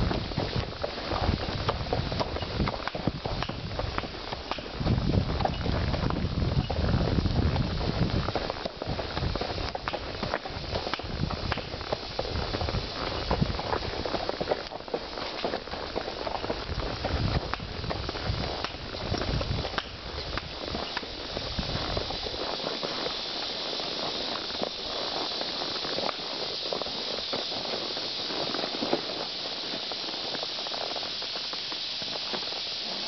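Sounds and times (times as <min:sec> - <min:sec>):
steady high hiss: 0:00.0 - 0:33.0.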